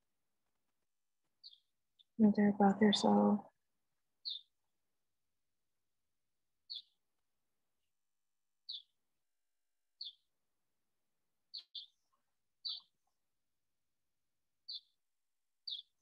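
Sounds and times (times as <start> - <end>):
bird chirping: 1.4 - 3.4, 4.2 - 4.6, 6.6 - 7.0, 8.6 - 9.0, 10.0 - 10.3, 11.5 - 13.1, 14.7 - 15.0, 15.6 - 16.0.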